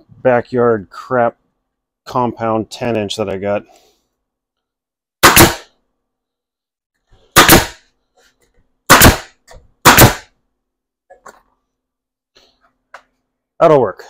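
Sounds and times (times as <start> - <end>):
loud sharp bangs: 5.2 - 5.7, 7.3 - 7.8, 8.9 - 10.3.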